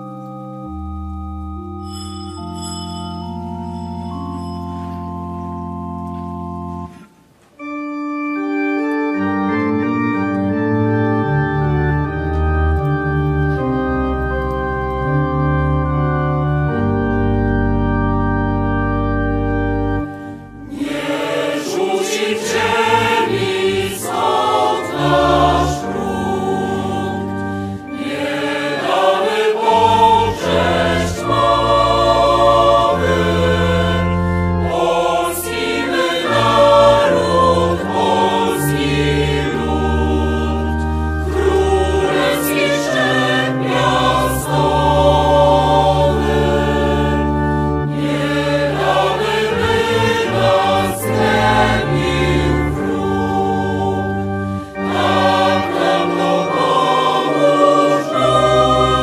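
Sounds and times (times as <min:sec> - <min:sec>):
pipe organ chords: 0:00.0 - 0:59.0
choir singing a hymn: 0:19.4 - 0:59.0.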